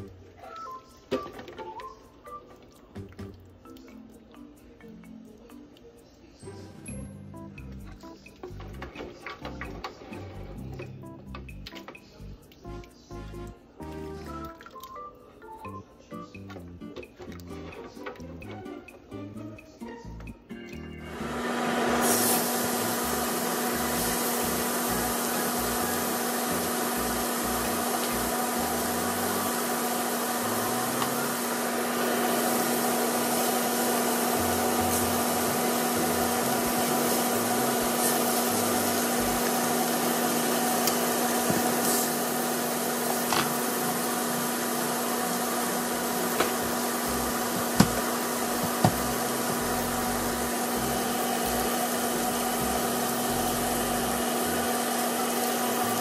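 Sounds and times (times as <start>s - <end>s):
fan whirring: 21.1s - 56.0s.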